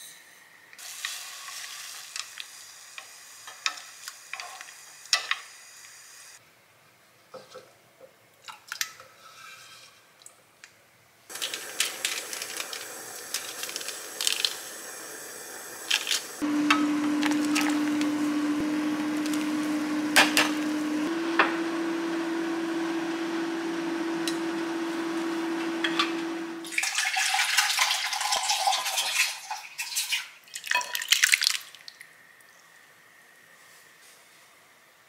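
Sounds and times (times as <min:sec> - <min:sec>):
pot simmering with hum: 0:11.3 - 0:26.7.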